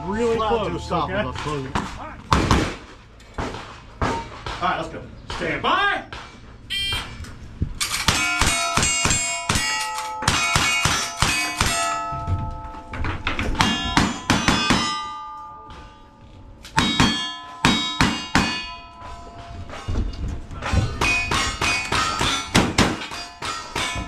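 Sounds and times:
gunshots: 1.8s - 2.9s
steel plate target clanging: 7.8s - 24.0s.

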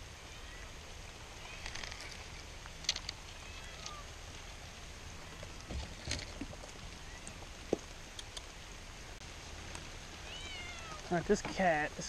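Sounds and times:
background hiss: 0.0s - 12.0s
cat meowing faintly: 10.2s - 11.1s.

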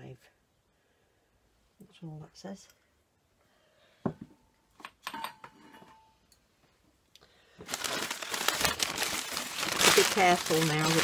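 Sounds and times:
newspaper rustling and crumpling: 7.6s - 11.0s.

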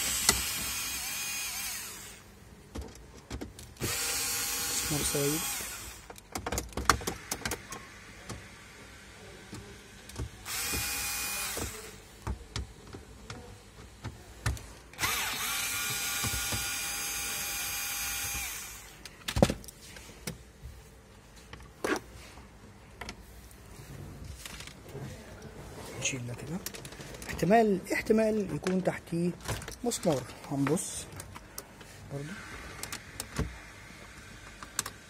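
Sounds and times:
power drill motor whining: 0.0s - 2.3s, 3.8s - 6.2s, 10.4s - 12.0s, 15.0s - 19.0s
clicks and knocks of plastic trim: 6.1s - 7.6s.

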